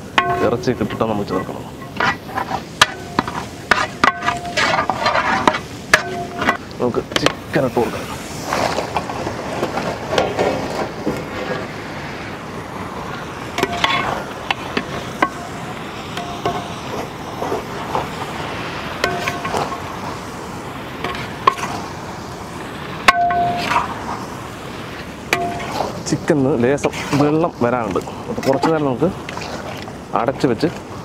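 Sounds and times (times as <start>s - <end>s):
metal ladle scraping pot: 0.0s - 6.6s, 13.6s - 18.1s, 19.0s - 19.9s, 21.0s - 21.8s, 23.1s - 24.0s, 25.3s - 26.1s, 26.8s - 27.4s
steady sizzle: 0.0s - 31.0s
metallic rings: 0.2s - 4.9s, 6.0s - 6.6s, 23.1s - 23.8s.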